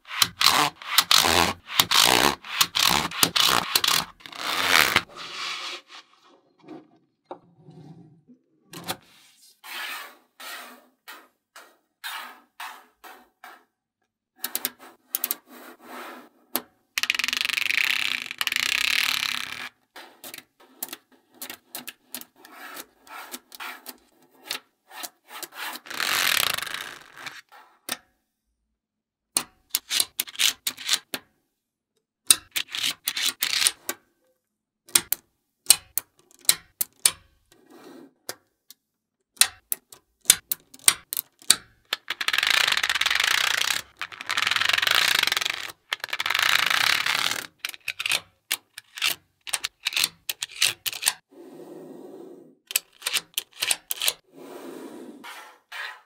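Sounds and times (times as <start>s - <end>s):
raspy rubbing sweeps: 5.1s - 6.7s.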